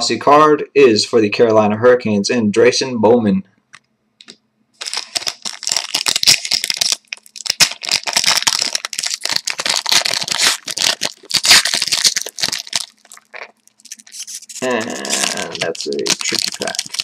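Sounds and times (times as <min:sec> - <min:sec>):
plastic wrapper crinkling and tearing: 0:04.8 - 0:17.0.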